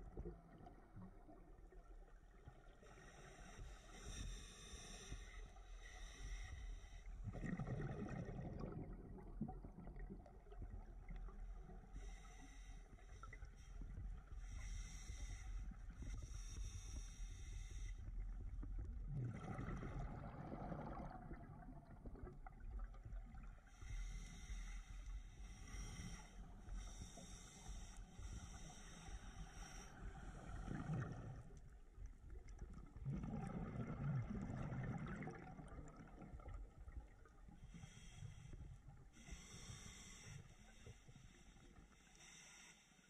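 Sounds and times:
diver breathing through regulator: 2.8s - 8.2s, 11.9s - 18.3s, 23.7s - 31.6s, 37.6s - 43.0s
exhaled bubbles gurgling: 7.1s - 24.7s, 25.5s - 41.8s.

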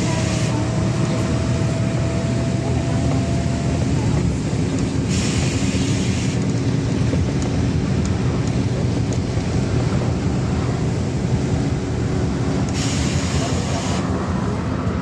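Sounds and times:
bus diesel engine rumble: 0.0s - 15.0s
road noise: 0.0s - 15.0s
air hiss: 5.1s - 6.4s, 12.7s - 14.0s.

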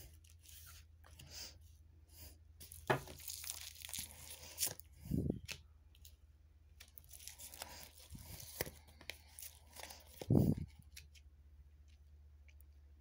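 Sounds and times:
cards rustling and sliding: 6.8s - 11.3s.

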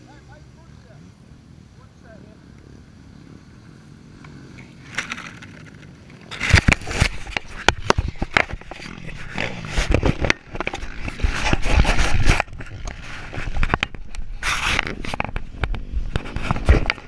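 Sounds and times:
camera handling noise: 4.8s - 17.0s.

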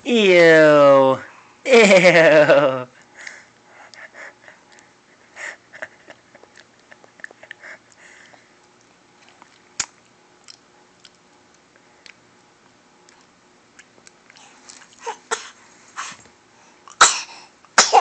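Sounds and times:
baby mouth smacks and clicks: 9.3s - 11.2s.

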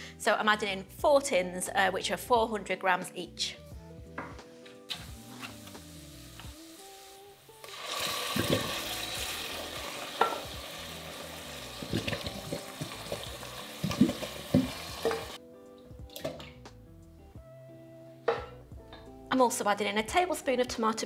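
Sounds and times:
tomatoes sizzling in hot oil: 4.9s - 15.4s
soft thumps and splats: 11.8s - 13.2s, 13.8s - 15.2s.

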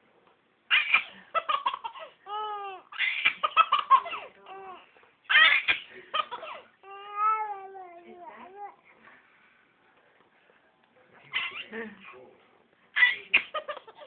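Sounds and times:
baby squealing: 0.7s - 4.2s, 5.3s - 7.5s, 11.3s - 11.7s, 13.0s - 14.0s
baby giggling: 0.7s - 4.6s, 13.0s - 14.0s.

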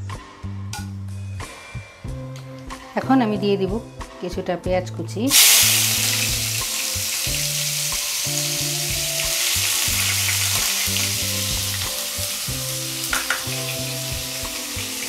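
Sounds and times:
onion sizzling in oil: 5.3s - 15.0s.

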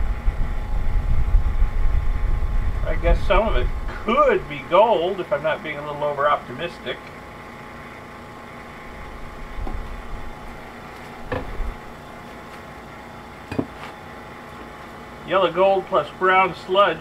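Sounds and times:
vacuum pump humming: 0.0s - 17.0s.

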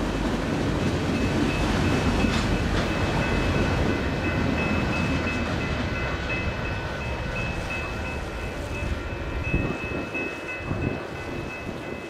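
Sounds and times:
train wheels rumbling on rails: 0.0s - 12.0s.

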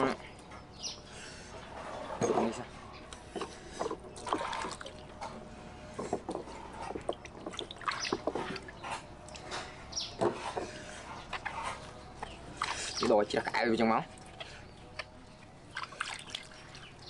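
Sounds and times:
water splashing and dripping: 4.2s - 5.2s, 6.9s - 9.5s, 12.5s - 17.0s.

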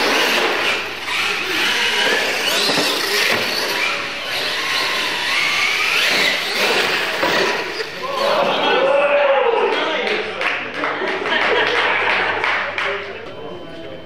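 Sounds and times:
electric motors whining: 0.0s - 9.5s.

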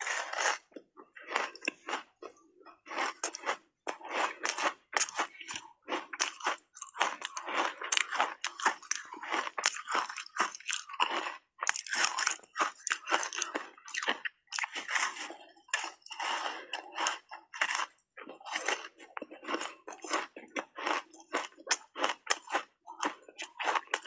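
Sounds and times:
ice crunching being chewed: 0.0s - 24.0s.

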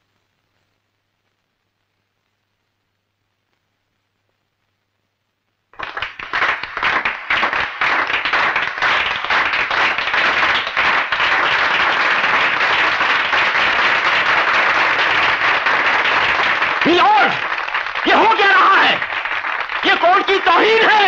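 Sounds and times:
crowd applauding: 5.7s - 21.0s.

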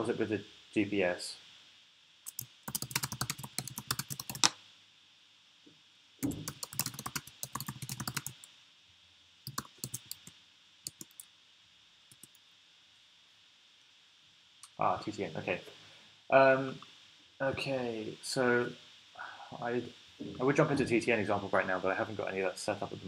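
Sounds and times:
typing on keyboard: 2.3s - 4.5s, 6.2s - 8.5s, 9.5s - 10.3s, 10.9s - 11.2s.

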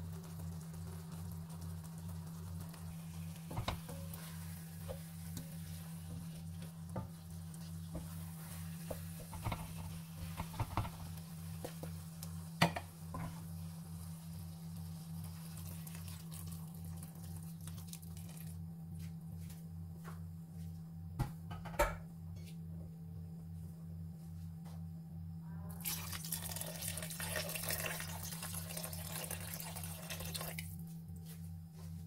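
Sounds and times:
food sizzling: 0.0s - 18.6s, 25.8s - 30.8s
wooden spatula scraping a pan: 3.4s - 11.9s
stock pouring: 14.6s - 18.5s, 25.8s - 30.8s.

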